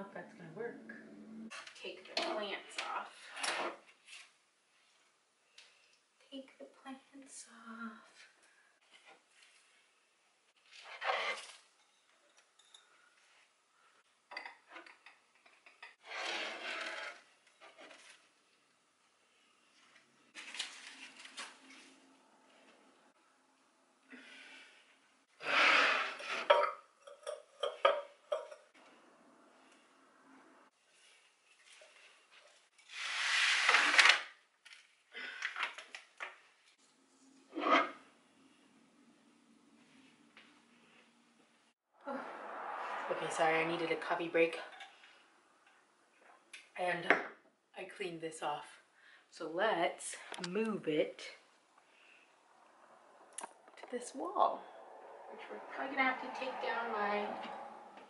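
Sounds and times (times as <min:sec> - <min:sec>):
scraping rustling noise: 0:30.7 - 0:34.2.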